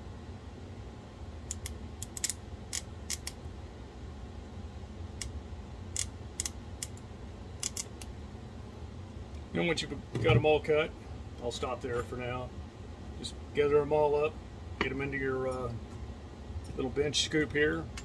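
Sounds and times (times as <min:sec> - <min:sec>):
metal snips cutting solder: 0:01.5 - 0:03.4, 0:05.2 - 0:07.0, 0:07.6 - 0:08.1.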